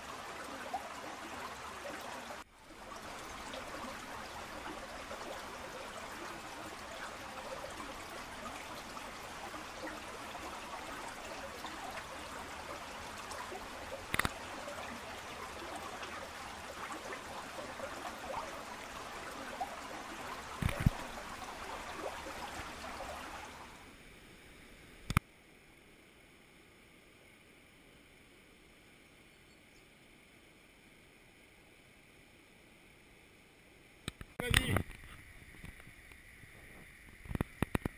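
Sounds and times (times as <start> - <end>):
stream rushing over rocks: 0.0 - 23.9.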